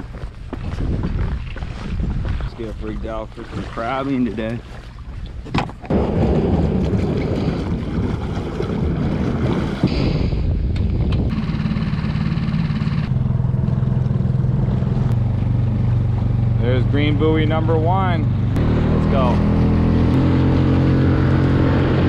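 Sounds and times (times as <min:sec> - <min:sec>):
water noise: 0:00.0 - 0:22.0
wind: 0:00.0 - 0:22.0
small outboard motor running: 0:11.3 - 0:22.0.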